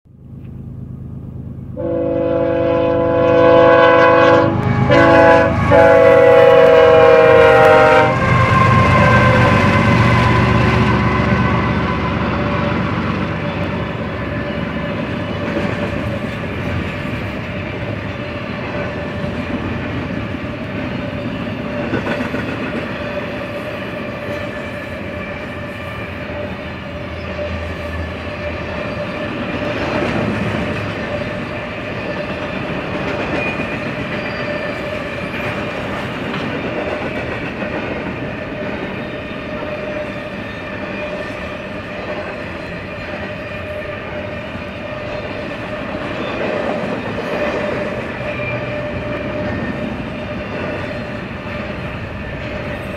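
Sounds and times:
freight train rumbling past: 0:00.1 - 0:52.9
wheels clicking over rail joints: 0:12.1 - 0:52.9.

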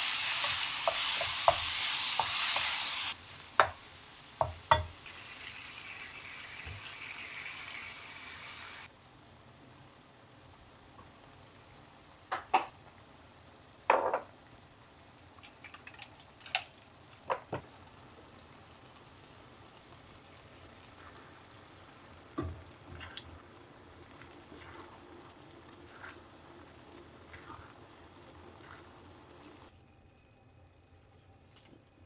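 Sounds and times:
sauce sizzling: 0:00.0 - 0:29.7
metal tongs clacking on frying pan: 0:03.6 - 0:03.8.

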